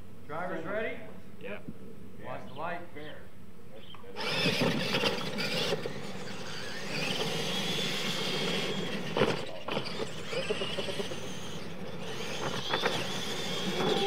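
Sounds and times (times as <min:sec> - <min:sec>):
high motor whine: 0:04.0 - 0:14.0
tires rolling on dirt: 0:04.2 - 0:14.0.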